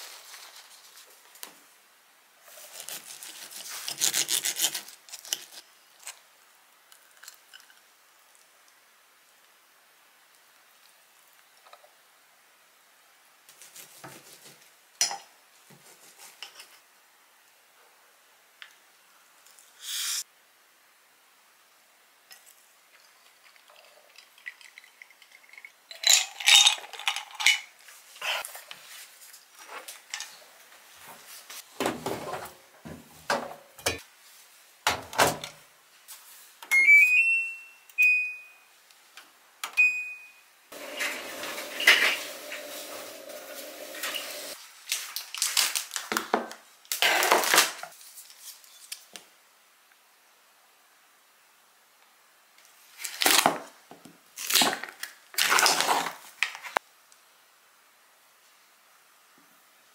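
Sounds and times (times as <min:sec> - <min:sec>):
kitchen items clattering: 0:23.4 - 0:28.5, 0:31.8 - 0:34.0, 0:40.8 - 0:44.6.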